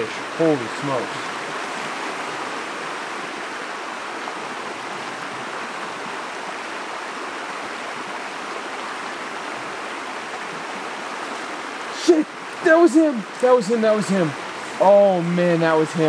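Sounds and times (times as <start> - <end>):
creek flowing over rocks: 0.0 - 16.0.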